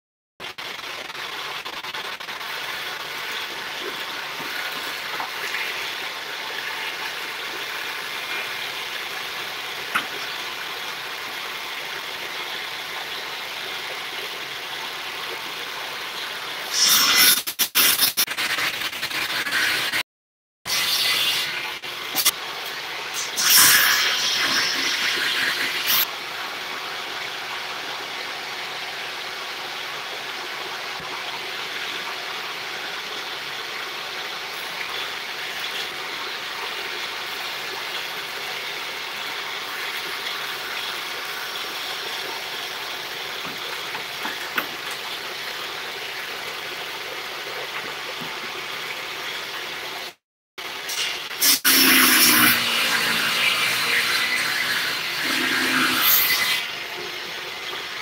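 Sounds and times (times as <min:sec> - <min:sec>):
table saw running: 0:51.6 - 0:56.7.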